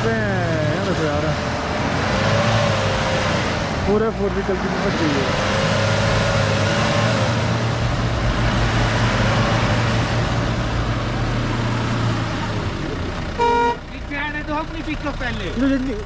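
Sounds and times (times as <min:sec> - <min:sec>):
vehicle engine humming: 0:00.0 - 0:16.0
short loud beep: 0:13.4 - 0:13.8.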